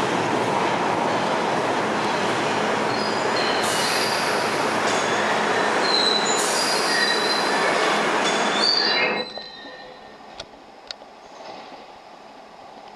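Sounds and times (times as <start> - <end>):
train wheels rumbling on rail: 0.0 - 12.9
train wheels squealing: 2.9 - 10.3.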